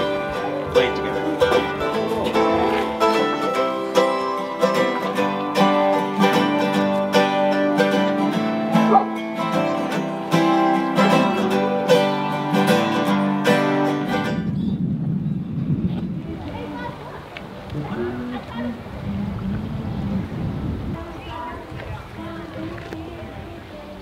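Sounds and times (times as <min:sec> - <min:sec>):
plucked string instruments playing: 0:00.0 - 0:14.6.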